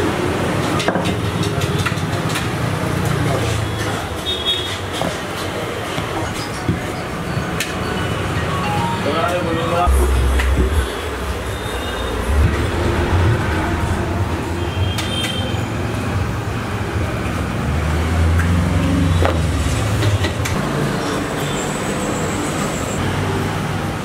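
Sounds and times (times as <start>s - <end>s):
low rumble of road traffic: 9.7s - 24.0s.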